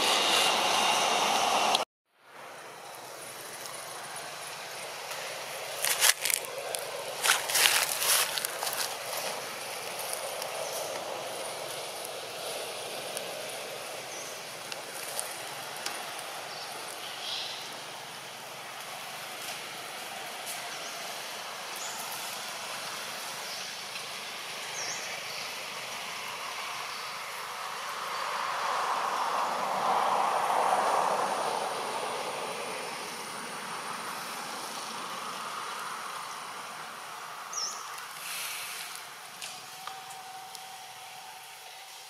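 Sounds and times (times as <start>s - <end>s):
steady rushing noise: 0.0s - 1.8s.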